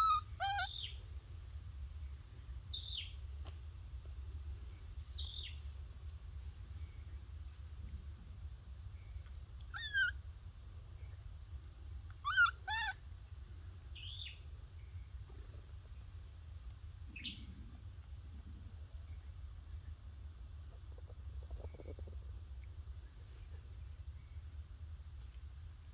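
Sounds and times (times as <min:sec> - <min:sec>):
high-pitched animal calls: 0:00.0 - 0:01.0, 0:09.7 - 0:10.2, 0:12.2 - 0:13.0
high insect whine: 0:00.0 - 0:25.9.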